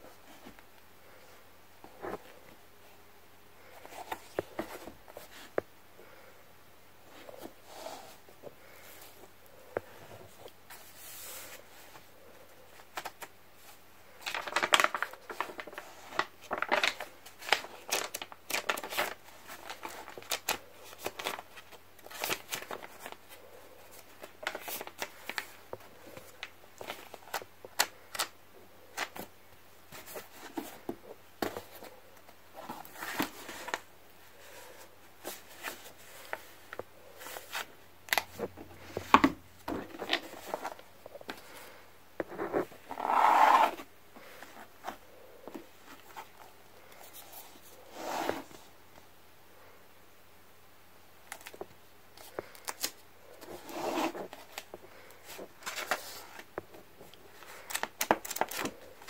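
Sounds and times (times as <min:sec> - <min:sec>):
paper pages rustling: 0:12.7 - 0:28.3, 0:29.9 - 0:41.6, 0:51.3 - 0:59.0.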